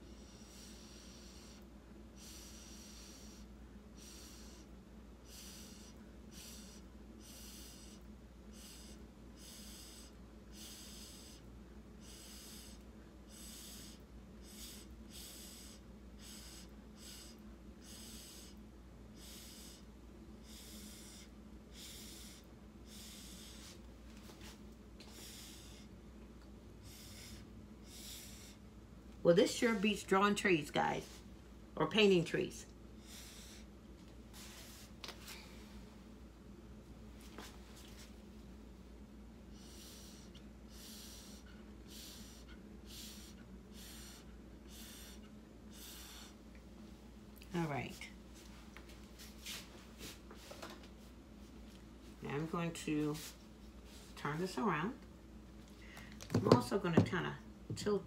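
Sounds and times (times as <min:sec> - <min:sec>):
breath blown through a straw: 0:00.0 - 0:18.6, 0:19.2 - 0:23.8, 0:25.0 - 0:25.9, 0:26.8 - 0:28.6, 0:33.0 - 0:33.7, 0:39.5 - 0:46.4.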